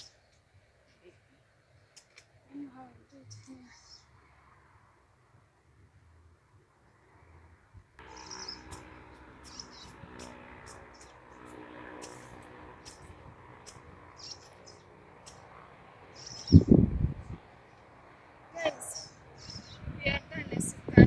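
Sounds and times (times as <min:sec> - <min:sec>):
birds chirping: 0:00.0 - 0:04.2, 0:08.0 - 0:17.9, 0:18.6 - 0:20.9.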